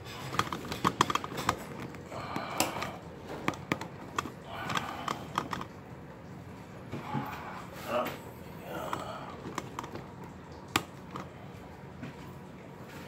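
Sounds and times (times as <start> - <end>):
handling clicks and taps: 0.2 - 5.8, 8.9 - 11.3.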